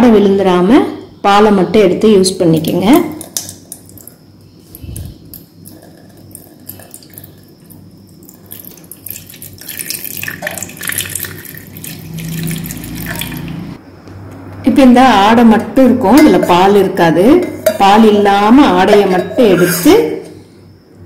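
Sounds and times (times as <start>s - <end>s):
milk pouring into steel pot: 5.3s - 13.7s.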